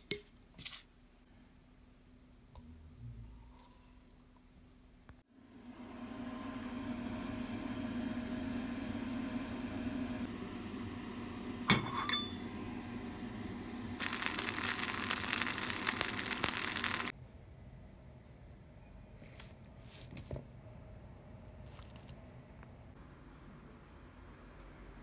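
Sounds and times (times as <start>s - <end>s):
low steady hum: 1.1s - 19.8s
batter sizzling in hot oil: 13.5s - 17.1s.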